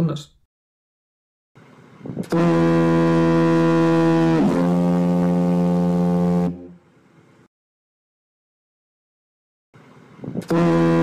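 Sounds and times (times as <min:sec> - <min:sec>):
two-tone foghorn: 0:02.2 - 0:06.8, 0:10.5 - 0:11.0.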